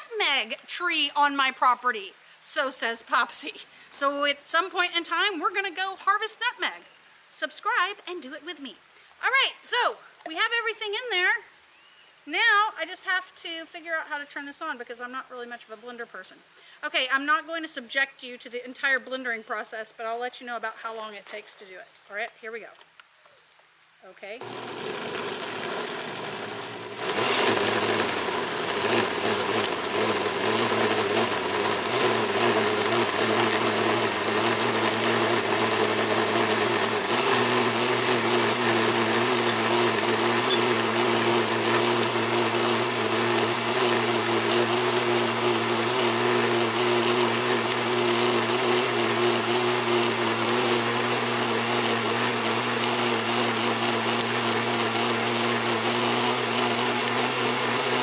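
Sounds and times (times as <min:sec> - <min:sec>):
blender running: 0:24.3 - 0:58.0
seeds knocking inside blender jar: 0:37.7 - 0:42.2.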